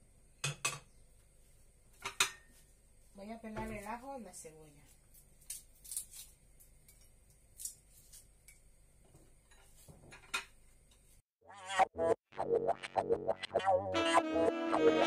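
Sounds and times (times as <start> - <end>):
garlic skin crackling as peeled: 5.1 - 8.3.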